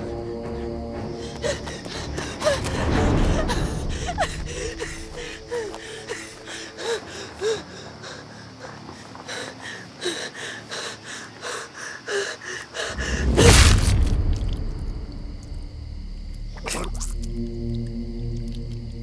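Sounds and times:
person panting and whimpering: 0:01.0 - 0:13.4.

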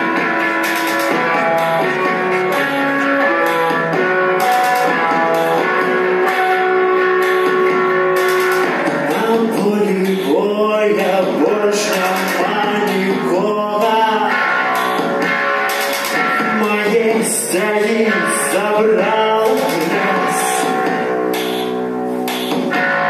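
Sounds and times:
keyboard tones: 0:00.0 - 0:09.2
person singing: 0:00.0 - 0:15.2, 0:16.1 - 0:21.7
electric guitars picking melody: 0:00.0 - 0:23.0.

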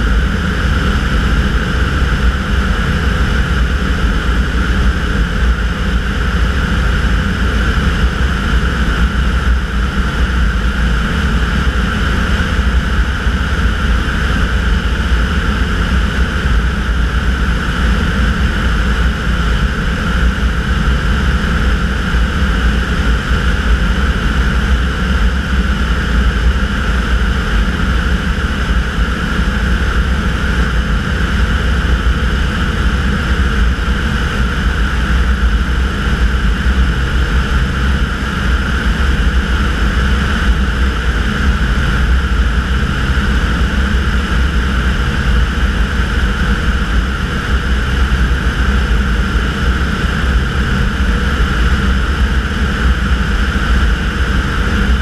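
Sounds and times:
propeller aircraft engine droning: 0:00.0 - 0:55.0.

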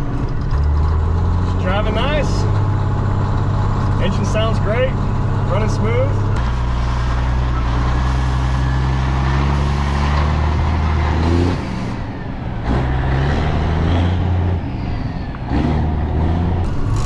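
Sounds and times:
truck diesel engine under load: 0:00.0 - 0:17.0.

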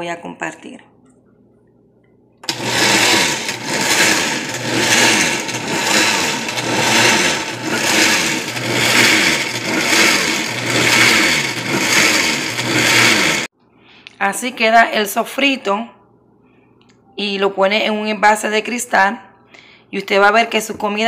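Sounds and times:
blender motor running: 0:02.4 - 0:13.5.

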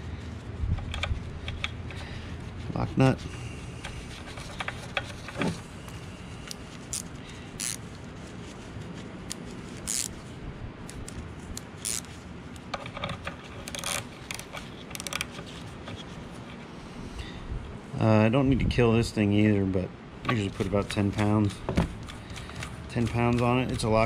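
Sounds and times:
steady low hum: 0:00.0 - 0:24.0
metallic clicks and scrapes: 0:00.7 - 0:02.1, 0:03.0 - 0:08.0, 0:09.2 - 0:10.3, 0:10.9 - 0:16.6.

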